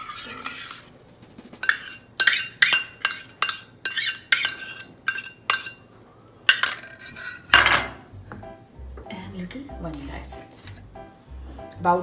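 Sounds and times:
metal spoon clinking on steel bowl: 1.6 - 5.8, 6.5 - 8.0.

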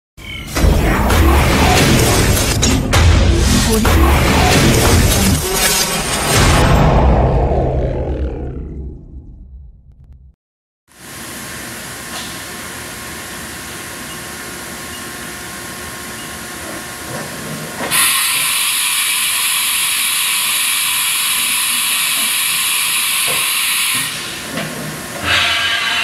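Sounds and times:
machine mechanical hum: 11.0 - 26.0.

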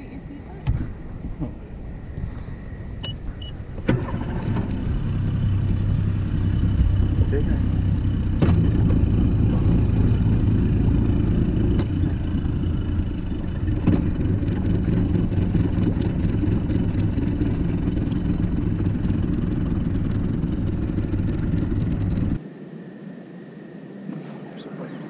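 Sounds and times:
outboard motor idling: 2.8 - 22.4
fast high-pitched ticking: 9.6 - 22.4.

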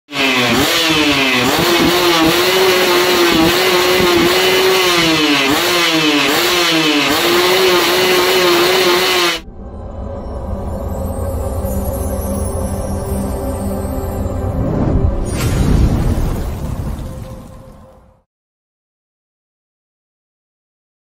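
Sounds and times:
two-stroke engine revving: 0.1 - 9.4
intro music: 7.4 - 15.3.

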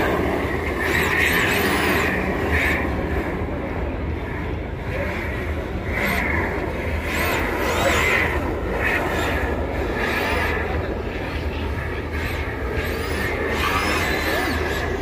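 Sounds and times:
electric motors whining: 11.9 - 15.0.

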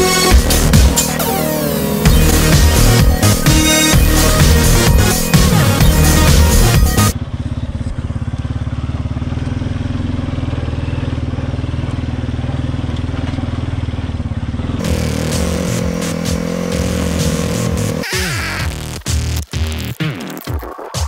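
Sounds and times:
electronic music: 0.0 - 7.2, 14.8 - 21.0
atv engine running: 0.0 - 19.0.

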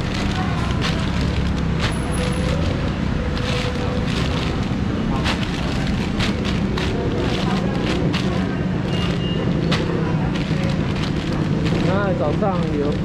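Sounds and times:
indistinct background voices: 0.0 - 13.0
plastic bags crinkling: 0.0 - 13.0.

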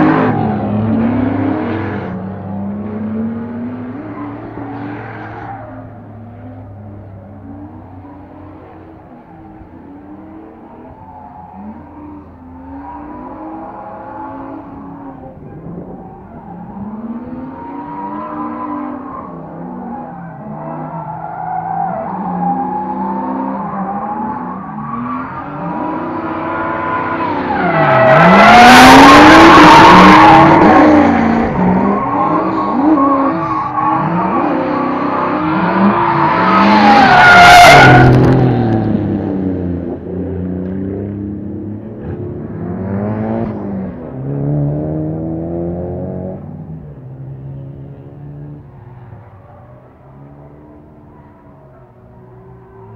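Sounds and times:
car engines revving: 0.0 - 52.9
tyre screech: 12.7 - 38.2.

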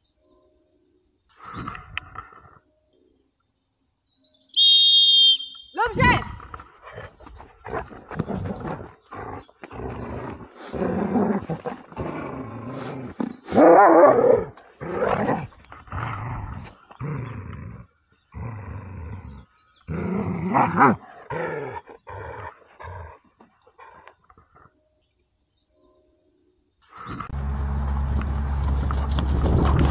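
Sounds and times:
dog growling: 6.2 - 24.7.

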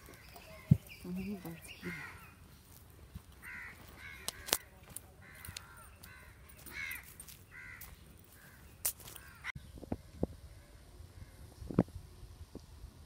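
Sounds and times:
crows cawing: 0.0 - 0.9, 1.6 - 2.5, 3.3 - 9.6.

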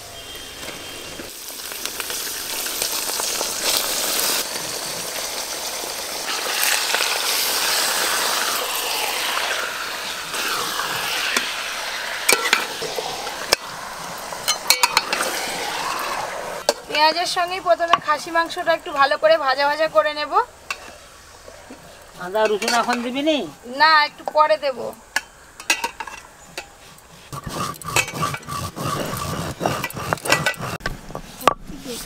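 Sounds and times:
meat sizzling in hot oil: 0.6 - 22.7
metal spatula stirring: 25.6 - 30.8.

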